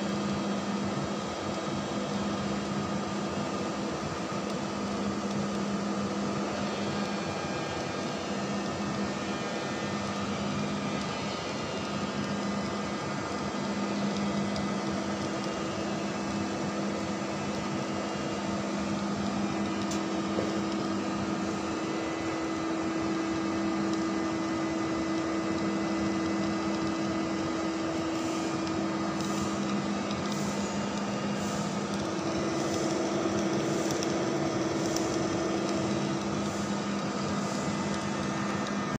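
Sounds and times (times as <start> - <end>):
lathe motor hum with held tones: 0.0 - 39.0.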